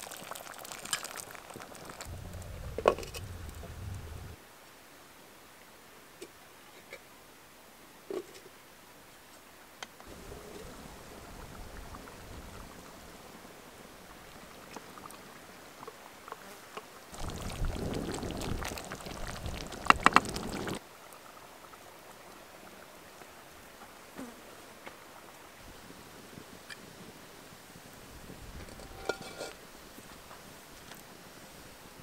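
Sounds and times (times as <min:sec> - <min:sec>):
stew bubbling in a pot: 0:00.0 - 0:04.4, 0:10.1 - 0:16.4, 0:17.0 - 0:22.4
wooden spoon stirring: 0:00.1 - 0:03.7.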